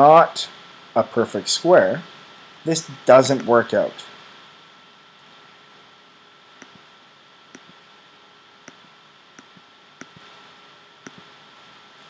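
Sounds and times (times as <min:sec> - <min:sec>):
faint steady hiss: 0:00.0 - 0:12.0
thin high hum: 0:00.0 - 0:12.0
computer mouse clicks: 0:06.6 - 0:06.8, 0:07.5 - 0:07.8, 0:08.6 - 0:10.3, 0:11.0 - 0:11.3.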